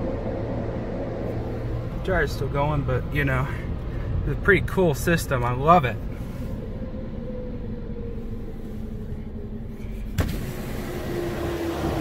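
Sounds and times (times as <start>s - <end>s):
steady low hum: 0.0s - 12.0s
power window motor whirring: 10.1s - 12.0s.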